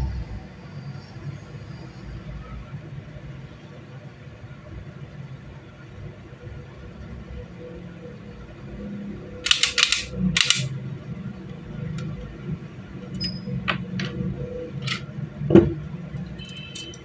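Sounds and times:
metallic clicks and knocks: 9.4s - 10.7s, 14.8s - 17.0s.

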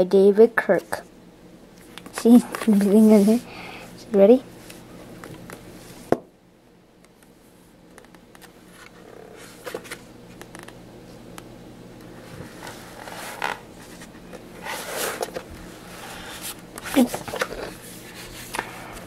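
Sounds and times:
book pages rustling and scraping: 2.2s - 3.5s, 8.0s - 10.8s, 12.1s - 19.0s.

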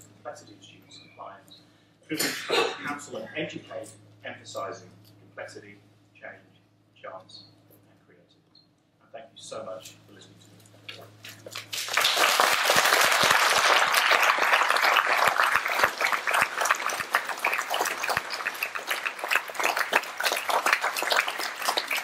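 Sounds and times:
audience applauding: 11.5s - 22.0s.

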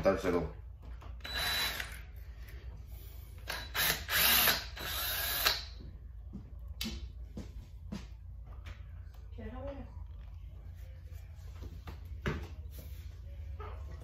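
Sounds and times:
cordless drill running: 1.2s - 2.1s, 3.4s - 5.8s.

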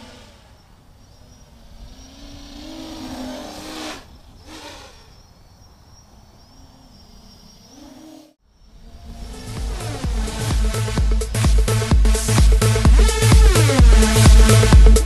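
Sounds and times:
drone motors buzzing: 8.6s - 15.0s.

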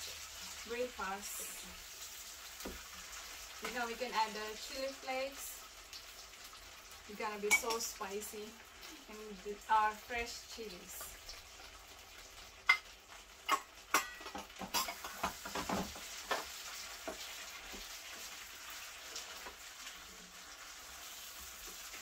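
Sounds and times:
prawns sizzling in a pan: 0.0s - 22.0s
spoon scraping a pan: 12.7s - 17.3s.

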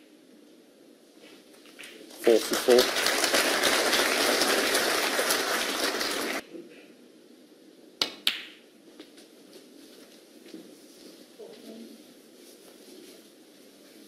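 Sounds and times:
audience applauding: 2.2s - 6.4s.

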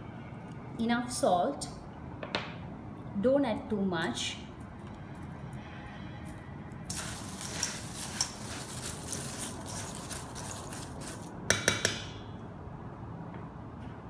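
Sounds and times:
spoon stirring snack in metal bowl: 6.9s - 11.4s
spoon tapping bowl: 11.5s - 12.2s.

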